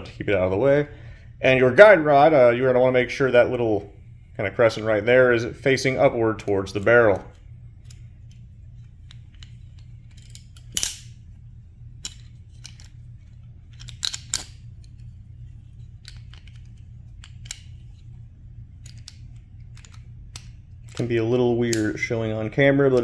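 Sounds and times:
steady low hum: 0:00.0 - 0:23.0
metallic clicks and scrapes: 0:07.8 - 0:11.1.

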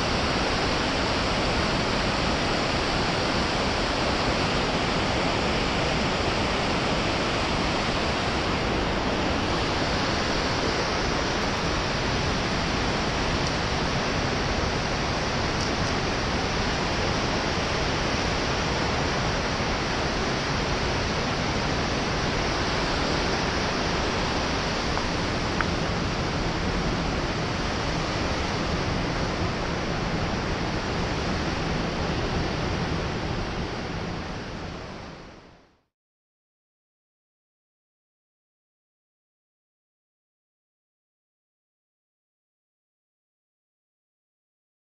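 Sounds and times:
water rushing over cascades: 0:00.0 - 0:35.6.

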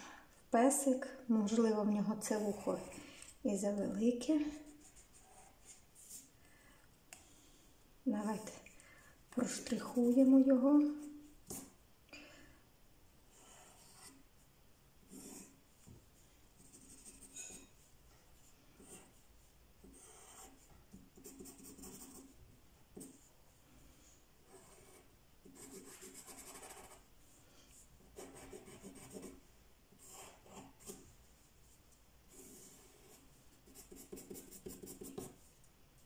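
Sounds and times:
pencil scratching on paper: 0:02.2 - 0:03.0, 0:04.5 - 0:06.3, 0:13.3 - 0:14.2, 0:15.1 - 0:15.6, 0:16.6 - 0:17.7, 0:18.8 - 0:19.2, 0:19.8 - 0:22.3, 0:24.4 - 0:27.0, 0:28.1 - 0:29.4, 0:30.0 - 0:31.0, 0:32.3 - 0:35.4.

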